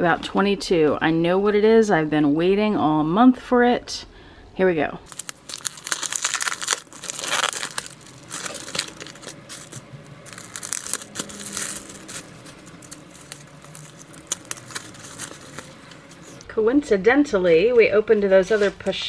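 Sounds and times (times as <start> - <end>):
wrapping paper tearing and crumpling: 5.1 - 16.4.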